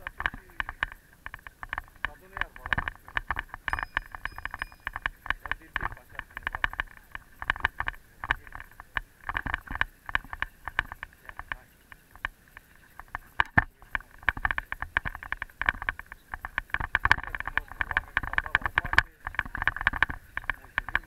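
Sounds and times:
bicycle rattling over bumpy path: 0:00.0 - 0:21.0.

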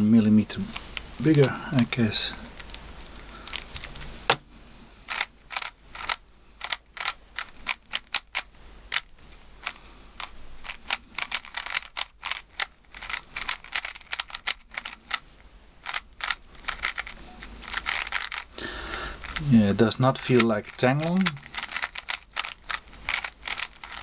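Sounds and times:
puzzle cube plastic clacks: 0:05.1 - 0:15.2, 0:15.8 - 0:18.6, 0:19.2 - 0:19.5, 0:20.1 - 0:24.0.

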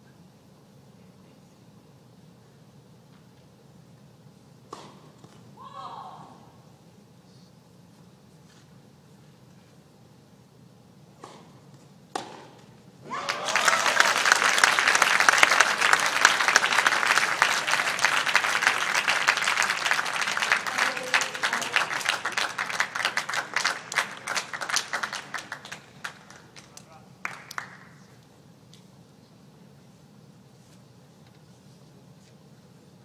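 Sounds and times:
tennis ball knocks: 0:11.2 - 0:12.6
crowd applauding: 0:13.1 - 0:28.0.

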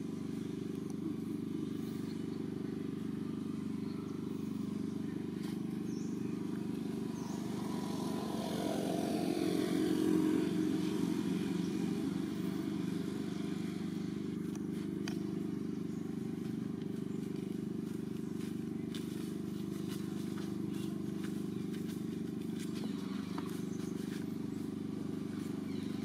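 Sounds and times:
engine hum: 0:00.0 - 0:26.0.

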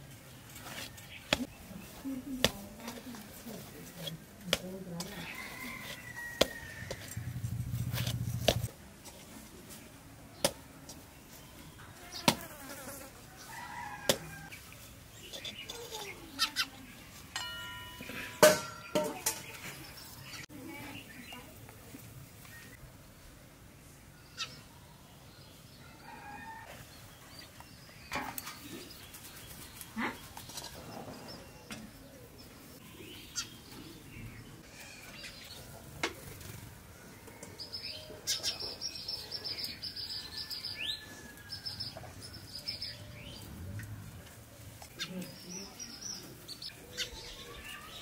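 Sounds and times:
small birds chirping: 0:13.8 - 0:17.3, 0:23.8 - 0:35.7, 0:37.4 - 0:48.0.

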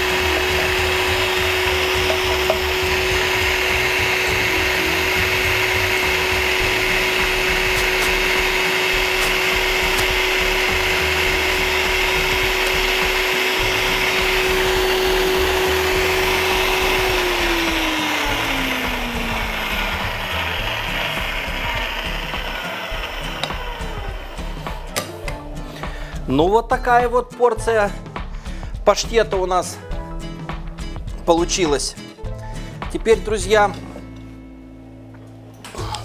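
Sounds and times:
meat grinder motor running: 0:00.0 - 0:25.1.

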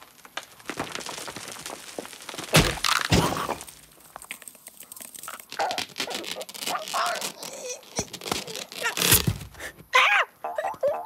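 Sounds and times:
heavy crunching impact: 0:00.0 - 0:04.2
stone cracking: 0:00.0 - 0:09.6.

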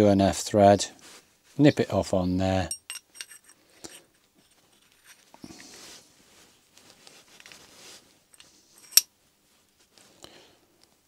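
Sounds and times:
metallic clink: 0:02.7 - 0:04.0, 0:08.4 - 0:09.1
metal parts scraping: 0:02.8 - 0:05.3, 0:08.4 - 0:09.0.

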